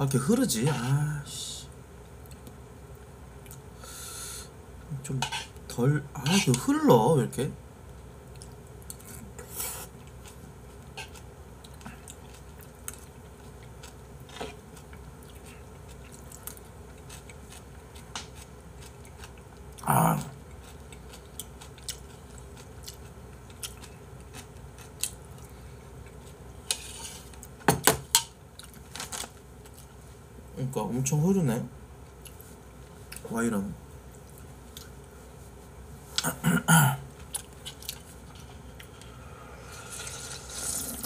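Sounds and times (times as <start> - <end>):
quiet chewing: 2.2 - 3.7, 8.2 - 27.6, 28.5 - 29.0, 32.1 - 33.3, 34.2 - 36.4, 37.1 - 40.3.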